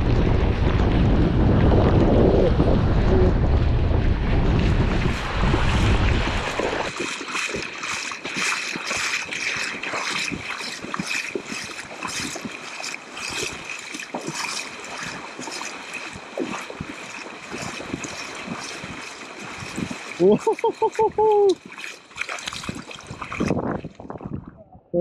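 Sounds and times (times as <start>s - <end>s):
surf: 0.0s - 24.7s
wind: 0.0s - 25.0s
seawater splashing and dripping: 4.6s - 24.5s.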